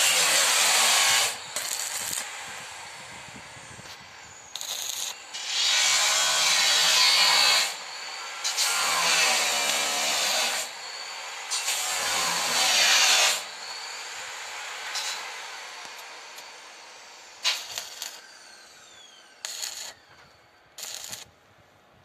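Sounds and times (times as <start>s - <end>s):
welding arc strike: 0.0s - 2.4s, 4.6s - 7.8s, 17.4s - 18.2s, 19.4s - 20.0s, 20.8s - 21.3s
arc welding crackle and hiss: 0.0s - 21.6s.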